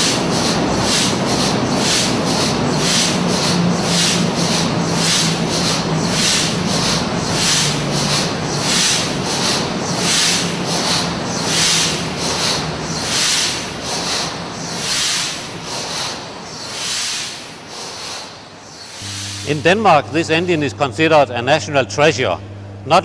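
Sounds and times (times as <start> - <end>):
low hum: 19.0 - 23.0.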